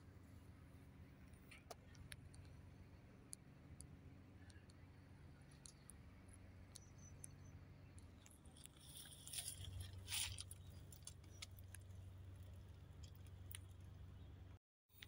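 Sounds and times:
camera rustle: 8.5s - 11.8s.

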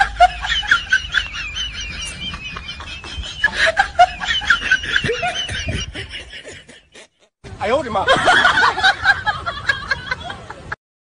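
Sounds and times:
high-pitched laughter: 0.0s - 7.3s.

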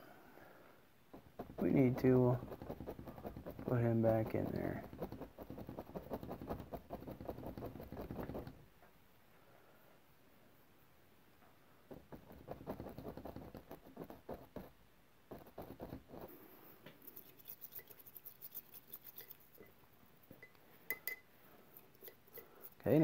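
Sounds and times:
paint brush tapping canvas: 1.1s - 8.6s, 11.9s - 14.7s.

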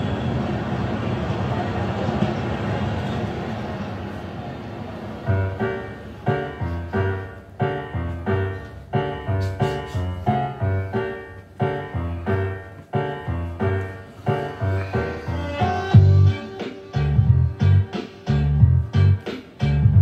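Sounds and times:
piano notes: 4.3s - 20.0s.

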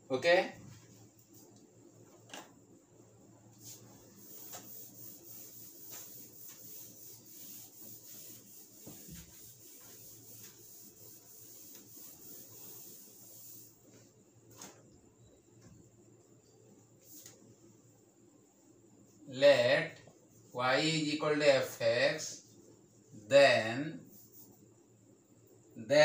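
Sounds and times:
cloth rubbing on whiteboard: 3.6s - 14.2s, 24.0s - 24.7s.

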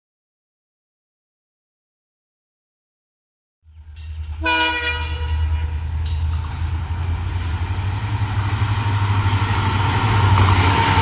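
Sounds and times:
diesel locomotive engine rumble: 3.6s - 11.0s
train rolling noise: 3.7s - 11.0s
locomotive horn blast: 4.4s - 5.8s.

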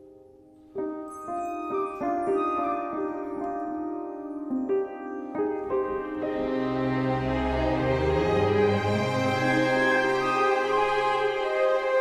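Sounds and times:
music with sustained chords: 0.0s - 12.0s.

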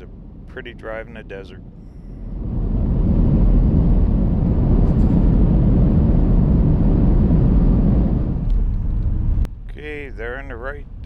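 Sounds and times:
road and wind noise: 0.0s - 11.0s.

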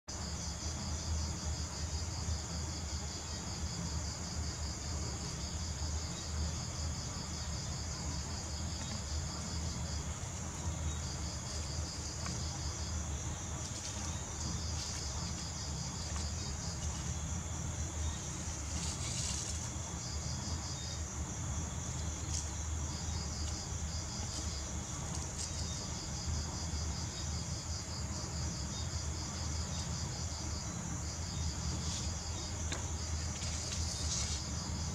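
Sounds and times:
low steady hum: 0.2s - 34.9s
insect trilling: 5.2s - 27.7s, 30.6s - 34.9s.

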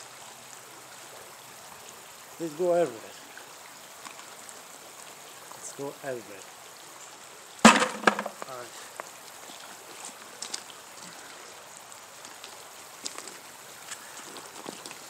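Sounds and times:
faint steady hiss: 0.0s - 15.0s
sharp knocks: 7.6s - 8.5s
faint ticks: 12.2s - 15.0s.

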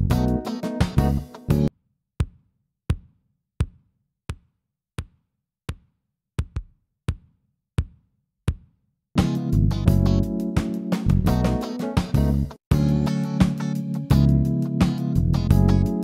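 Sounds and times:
music mix with guitar: 0.0s - 1.7s, 9.2s - 16.0s
kick drum hits: 2.2s - 5.8s, 6.4s - 10.1s.

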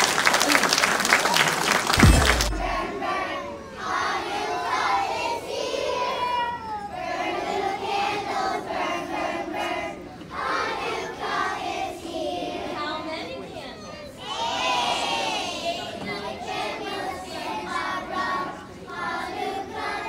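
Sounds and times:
children singing in unison: 6.9s - 12.2s.

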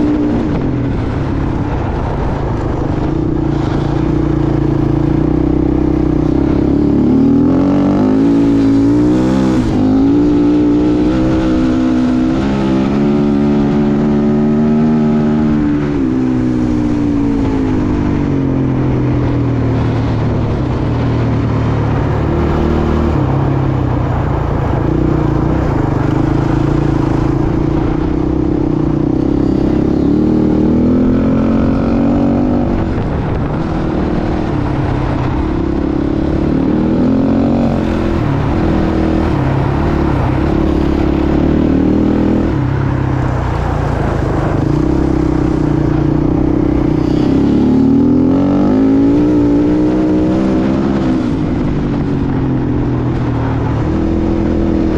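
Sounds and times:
dirt bike engine revving: 3.0s - 18.0s, 24.9s - 42.5s, 43.3s - 51.6s.

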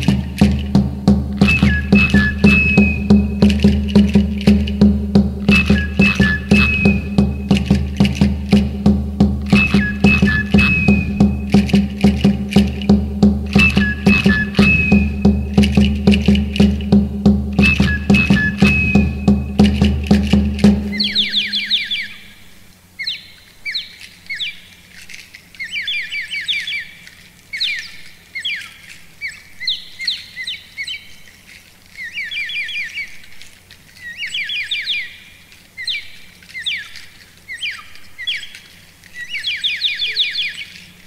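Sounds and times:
rapid high chirps: 0.0s - 24.6s, 34.1s - 41.0s
faint low hum: 0.0s - 41.0s.

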